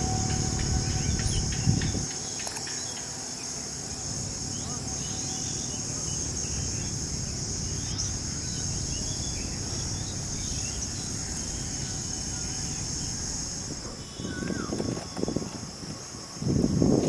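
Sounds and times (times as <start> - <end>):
high-pitched insect chorus: 0.0 - 17.0
faint bird chirps: 13.9 - 15.5.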